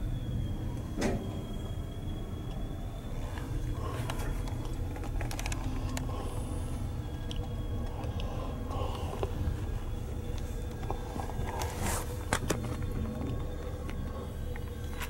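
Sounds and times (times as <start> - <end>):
train brakes squealing: 0.0 - 5.0
low train rumble: 0.0 - 15.0.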